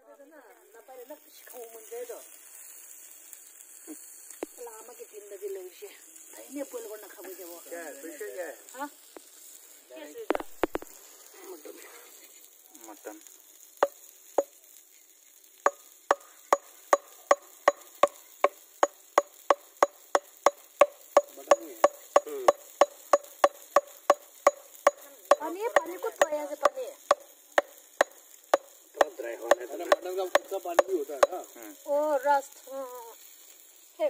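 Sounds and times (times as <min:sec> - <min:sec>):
knife chopping on wooden board: 0:15.7 - 0:25.9.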